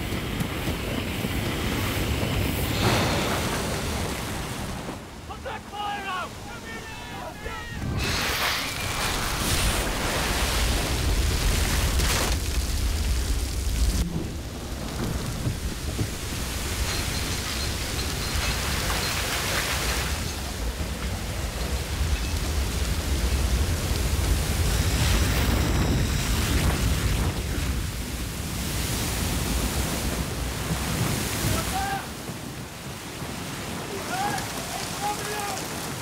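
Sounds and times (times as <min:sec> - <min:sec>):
spray falling like rain: 0:00.0 - 0:05.1, 0:07.8 - 0:36.0
oil and gas rushing out: 0:07.8 - 0:20.2.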